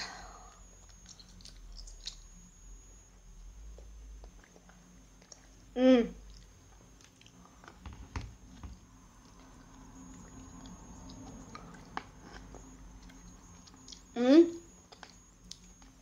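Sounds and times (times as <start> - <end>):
chewing candy: 0.8 - 2.4.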